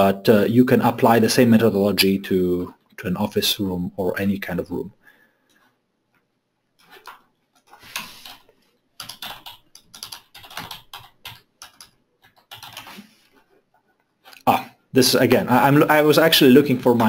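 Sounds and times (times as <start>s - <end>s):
typing on a keyboard: 6.8s - 13.0s.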